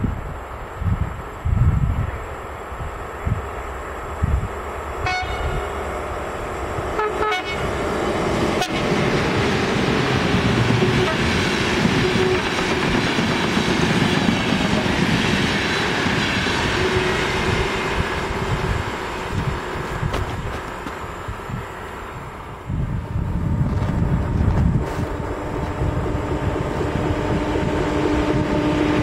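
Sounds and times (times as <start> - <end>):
train wheels rumbling on rails: 0.0 - 29.0
train horn: 5.0 - 5.8, 6.9 - 7.8, 8.5 - 9.0, 10.7 - 11.3, 16.5 - 17.9.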